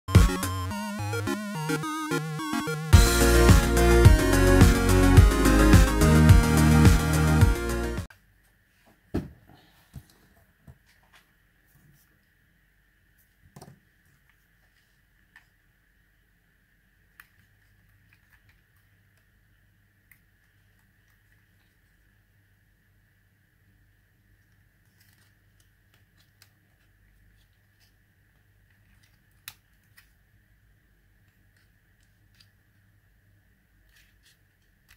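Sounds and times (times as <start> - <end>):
music: 0.1 - 8.1.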